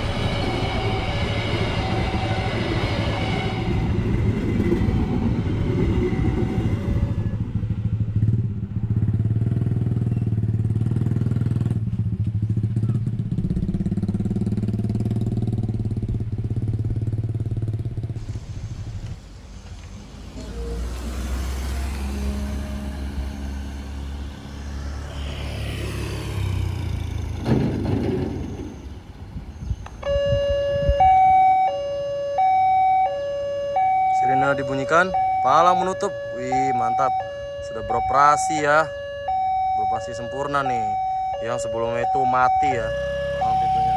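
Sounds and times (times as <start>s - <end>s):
train coaches rumbling past: 0.0s - 9.6s, 18.2s - 29.7s
motorcycles passing: 5.9s - 29.2s
car driving over crossing: 17.3s - 30.9s, 42.0s - 43.9s.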